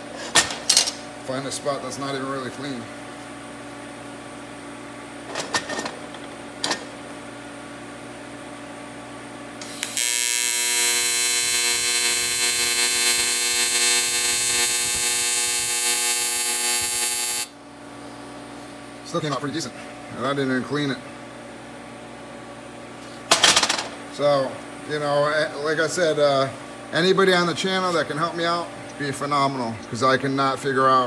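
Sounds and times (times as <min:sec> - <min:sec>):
welding arc buzzing: 0:09.6 - 0:17.6.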